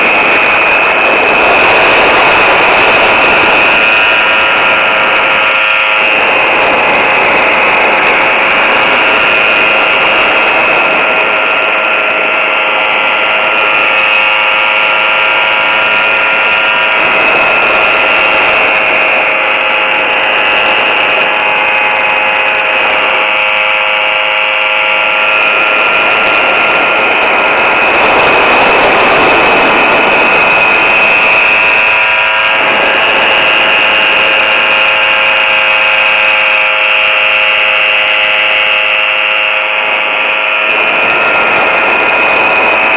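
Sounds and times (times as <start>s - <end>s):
air rushing: 0.0s - 23.4s, 25.2s - 35.2s
small engine buzzing: 0.0s - 42.9s.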